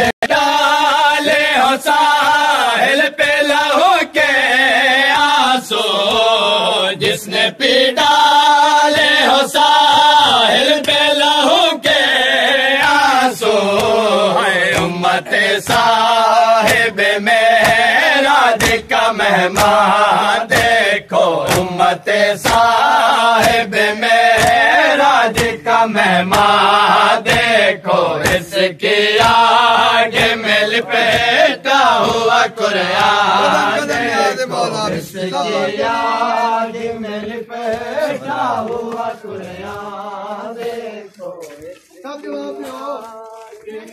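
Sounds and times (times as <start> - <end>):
men chanting in unison: 0.0 - 43.9
hands slapping chests: 12.8 - 34.2.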